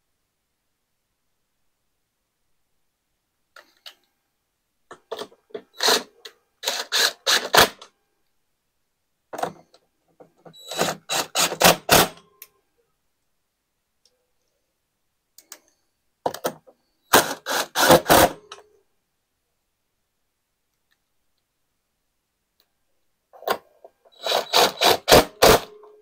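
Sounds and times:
cordless drill driving screws: 0:05.8 - 0:07.8, 0:10.6 - 0:12.2, 0:17.2 - 0:18.4, 0:24.1 - 0:25.7.

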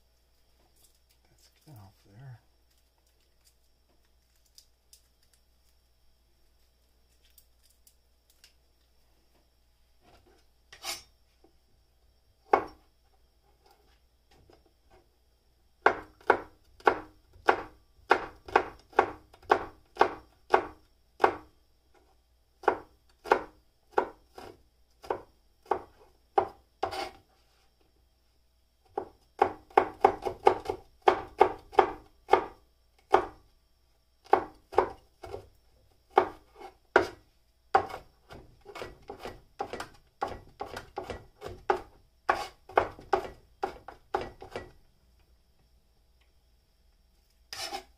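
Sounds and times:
cleaver chopping on cutting board: 0:37.8 - 0:44.7.

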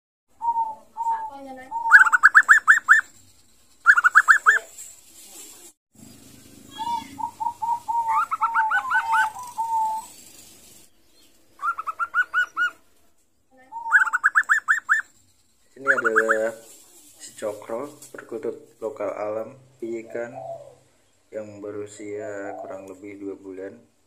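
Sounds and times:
dove cooing: 0:00.4 - 0:03.0, 0:06.7 - 0:10.1, 0:11.6 - 0:12.8, 0:15.8 - 0:16.6, 0:19.9 - 0:21.0, 0:22.0 - 0:22.9.

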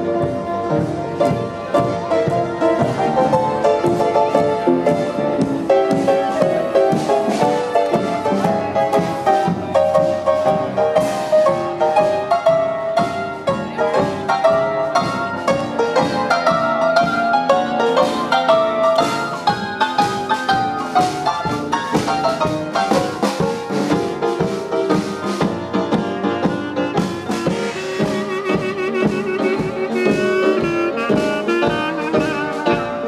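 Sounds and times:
live band music: 0:00.0 - 0:33.0
upright piano quick notes: 0:00.0 - 0:33.0.

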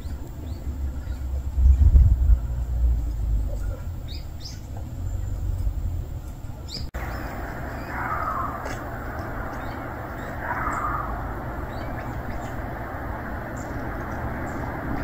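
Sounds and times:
low rumble: 0:00.0 - 0:15.0
steady hiss: 0:00.0 - 0:15.0
high bird chirps: 0:06.7 - 0:15.0.

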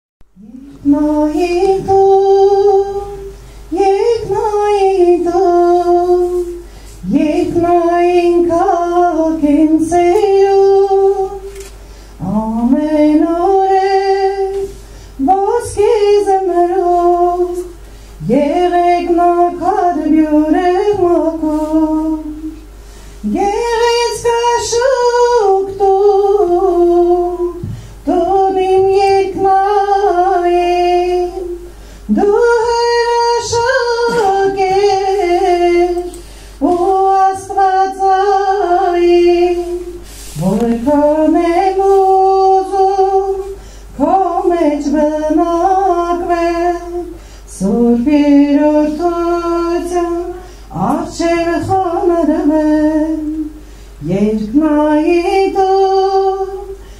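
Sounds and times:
woman singing a hymn solo: 0:00.3 - 0:11.6, 0:12.2 - 0:56.9.

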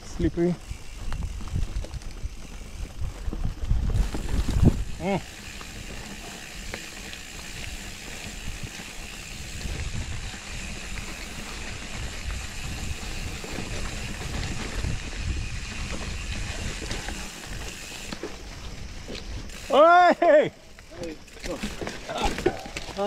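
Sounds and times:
wind rumble on microphone: 0:00.0 - 0:06.3, 0:07.6 - 0:17.7
bike clicks and rattles: 0:00.0 - 0:23.0
bike tyre noise on dirt: 0:00.0 - 0:23.0.

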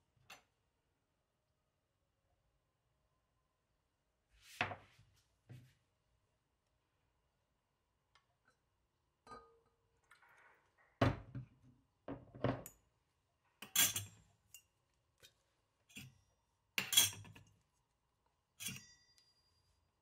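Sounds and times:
metal spoon clinking against bowl: 0:13.6 - 0:14.7, 0:16.8 - 0:17.5, 0:18.6 - 0:19.4.

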